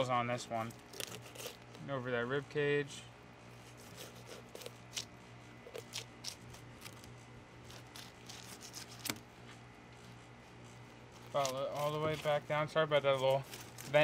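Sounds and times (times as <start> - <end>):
low vent hum: 0.0 - 14.0
knife cutting through fish scales: 0.5 - 1.8, 3.6 - 9.3, 10.8 - 14.0.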